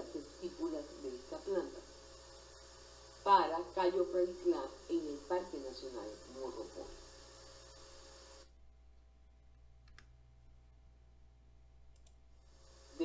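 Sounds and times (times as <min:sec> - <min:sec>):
faint hiss and hum: 0:00.0 - 0:13.0
faint clicks: 0:11.9 - 0:12.2.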